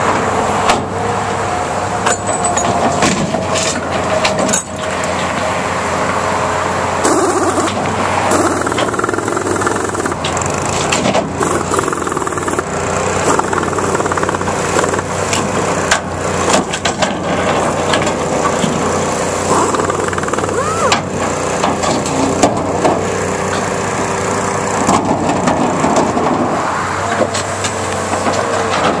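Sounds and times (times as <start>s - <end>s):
excavator running: 0.0s - 29.0s
metal clanks and creaks: 2.0s - 5.4s
steady whine: 3.6s - 22.3s.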